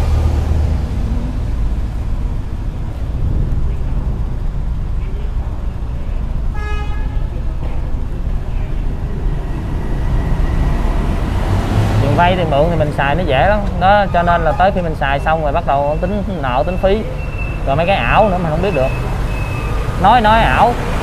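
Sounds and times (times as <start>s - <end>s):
road traffic rumble: 0.0s - 21.0s
vehicle horn beep: 6.5s - 7.5s.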